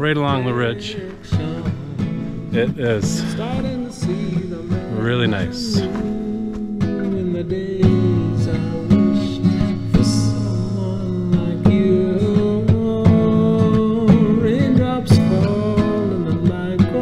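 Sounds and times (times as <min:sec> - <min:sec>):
song with strummed acoustic guitar: 0:00.0 - 0:17.0.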